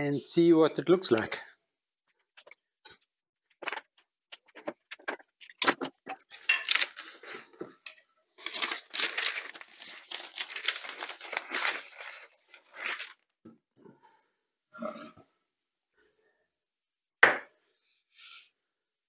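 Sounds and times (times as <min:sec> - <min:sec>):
paper crackling and tearing: 0:08.4 - 0:13.2.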